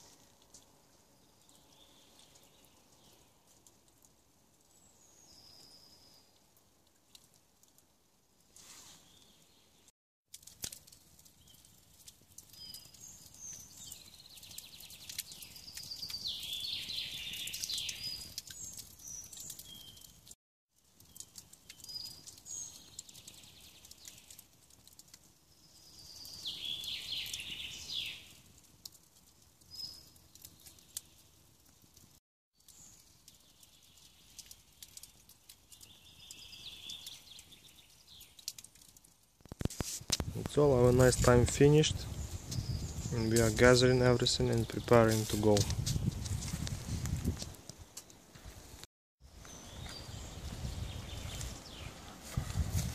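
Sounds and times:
songbirds singing: 1.0 - 3.7, 4.6 - 6.4, 11.2 - 20.2, 21.0 - 24.4, 25.5 - 28.5, 29.6 - 31.4, 32.6 - 38.9, 40.4 - 47.2, 49.3 - 52.2.

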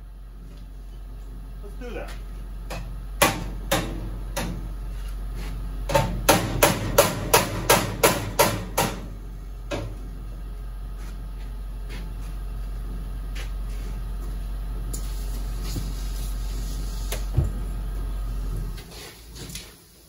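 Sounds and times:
steady low hum: 0.0 - 20.0
hammer striking steel: 5.9 - 9.1.

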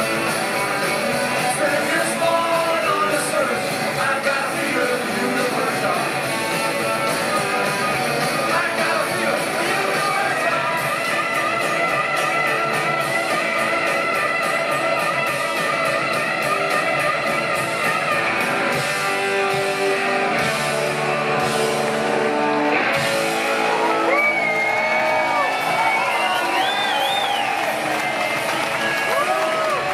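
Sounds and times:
drums: 0.0 - 29.9
electric guitar: 0.0 - 29.9
person singing: 1.0 - 13.4
crowd whistling and cheering: 5.2 - 29.9.

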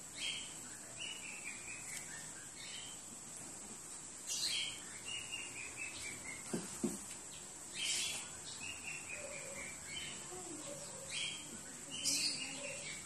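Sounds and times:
bird singing: 0.0 - 3.2, 4.2 - 13.0
soft knocks: 6.5 - 7.2.

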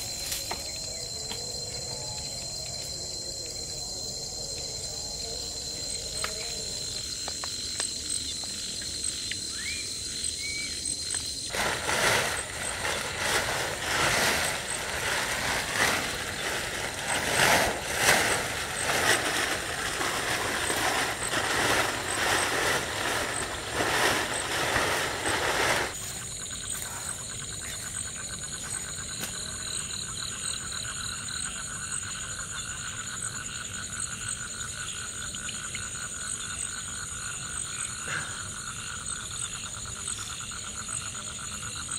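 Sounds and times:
night insects chirping: 0.0 - 41.9
plastic tarp crackling and flapping: 11.5 - 26.0.

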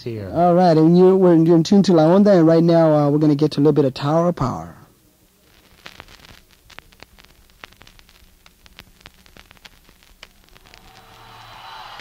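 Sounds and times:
low electrical hum: 0.0 - 12.0
light hiss: 4.8 - 12.0
crackling clicks and pops: 5.2 - 12.0.

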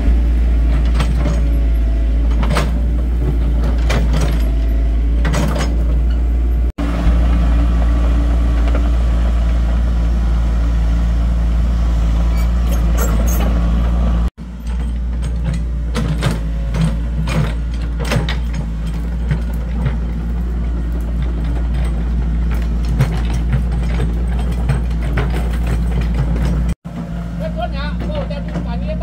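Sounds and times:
excavator diesel engine running: 0.0 - 29.0
metallic clanks and rattles: 0.6 - 6.7, 12.2 - 26.8.

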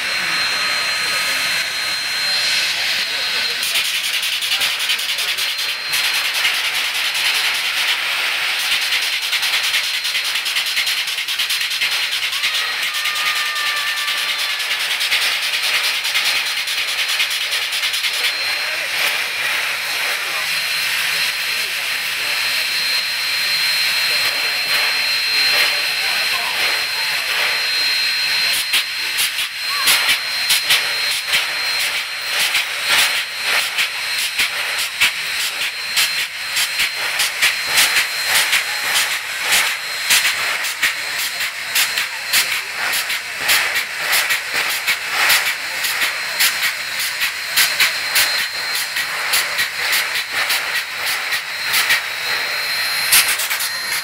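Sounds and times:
thin high tone: 0.0 - 6.4, 12.0 - 16.0, 18.1 - 34.2, 51.4 - 54.0
steam hissing: 0.0 - 54.0.

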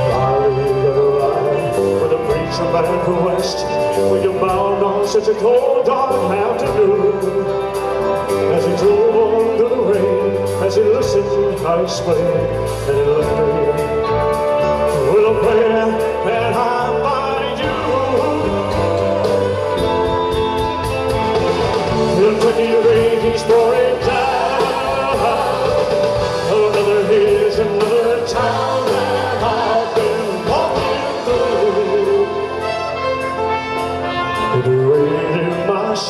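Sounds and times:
live rock band playing: 0.0 - 36.0
trumpets: 13.7 - 36.0.

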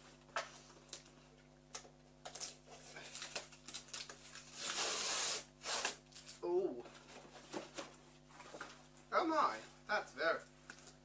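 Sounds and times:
cardboard tearing: 2.3 - 6.2.

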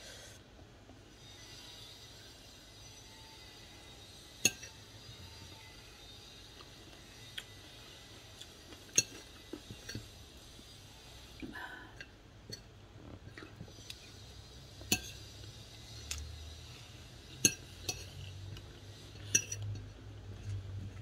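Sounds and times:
cutlery clinking on a plate: 4.4 - 4.8, 8.8 - 10.1, 14.9 - 15.2, 17.4 - 18.3, 19.2 - 19.9.

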